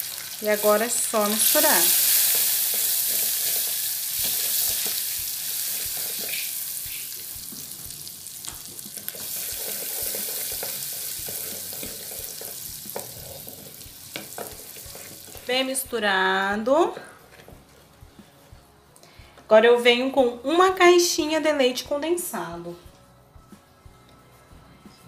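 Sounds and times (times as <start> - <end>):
margarine sizzling in sugar: 0.0 - 16.0
spatula scraping and tapping pot: 8.5 - 15.5.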